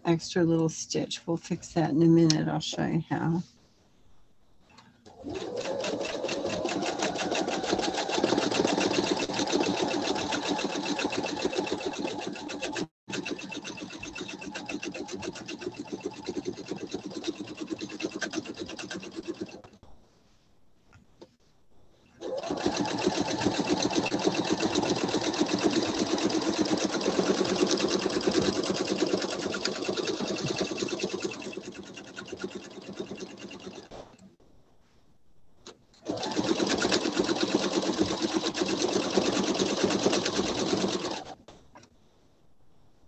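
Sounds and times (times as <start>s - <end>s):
sewing machine stitching fast: 5.1s - 19.8s, 22.2s - 34.0s, 36.0s - 41.4s.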